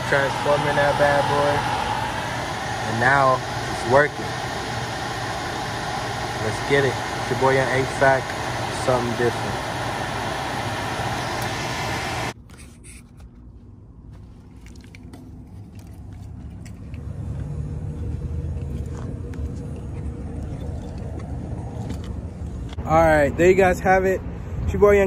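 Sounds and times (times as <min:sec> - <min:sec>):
air handler blower rushing: 0:00.0 - 0:12.4.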